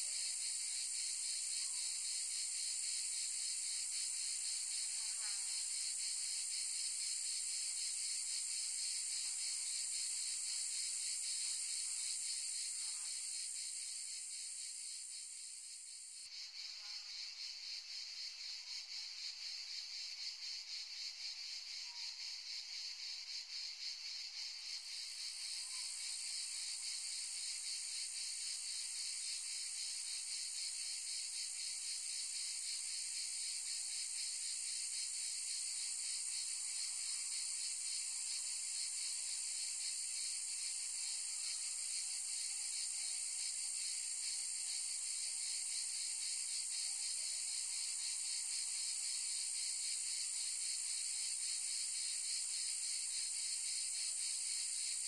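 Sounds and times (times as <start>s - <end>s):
cicadas buzzing: 42.8s - 46.8s.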